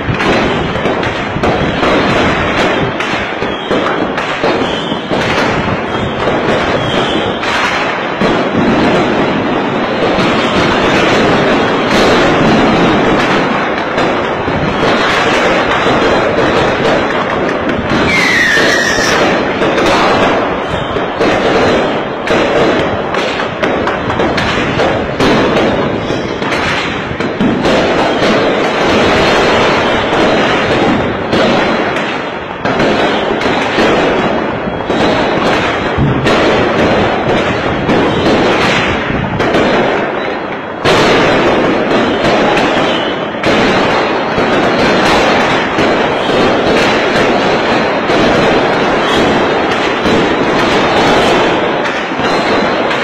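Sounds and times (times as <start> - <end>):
fireworks bangs and crackles: 0.0 - 53.0
falling firework whistle: 3.2 - 7.8, 17.9 - 21.5, 42.0 - 43.4.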